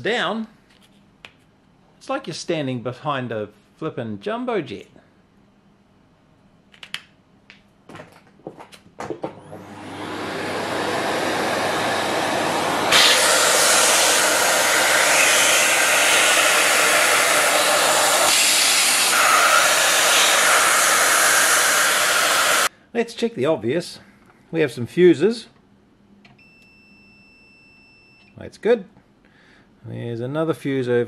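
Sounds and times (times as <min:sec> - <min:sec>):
vacuum cleaner running: 0:09.3 - 0:22.7.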